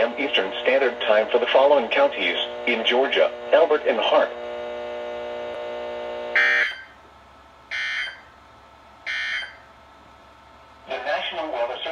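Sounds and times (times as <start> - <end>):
steady buzzing tone: 0.0 - 11.9
screechy data tones: 6.3 - 7.0.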